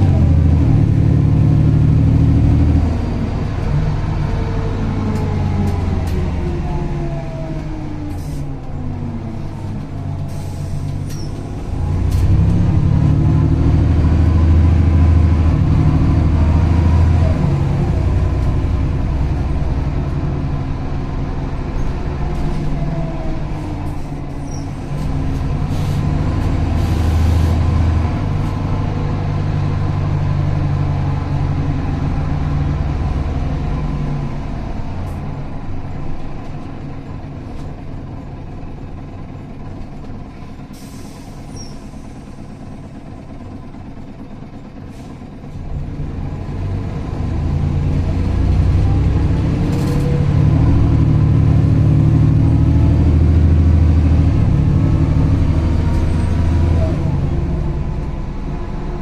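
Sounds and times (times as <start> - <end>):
bus engine running: 0.0 - 59.0
air brake hisses: 8.1 - 8.5, 10.2 - 11.4, 26.8 - 27.6, 40.7 - 42.6.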